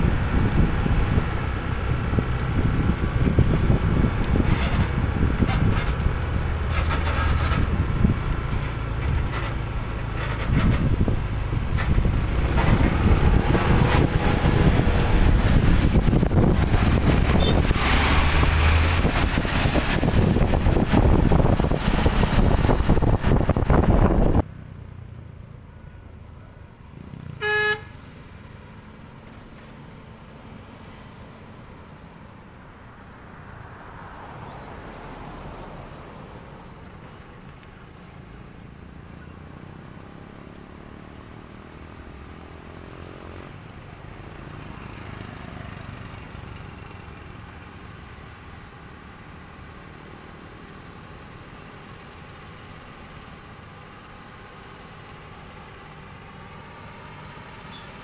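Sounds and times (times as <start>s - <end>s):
vehicles on rough road: 0.0s - 58.0s
vehicle horn toot: 17.3s - 17.7s, 27.3s - 28.0s.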